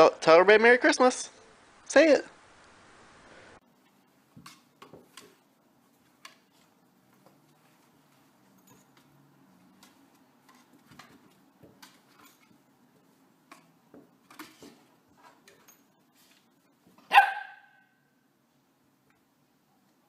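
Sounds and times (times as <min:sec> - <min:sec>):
dog barking: 0:17.1 - 0:18.0.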